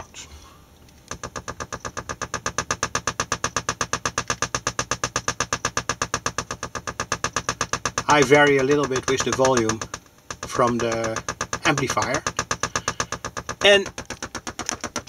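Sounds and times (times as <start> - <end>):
rattle of buzzy electronic pulses: 0.0 - 15.0.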